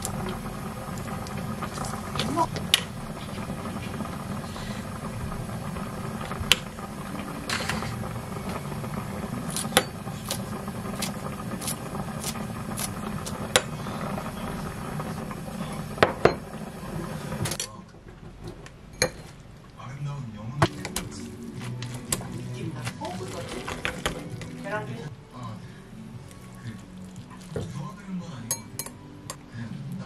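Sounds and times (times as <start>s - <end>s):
stirring in a glass bowl: 20.8s - 24.6s, 26.3s - 27.8s.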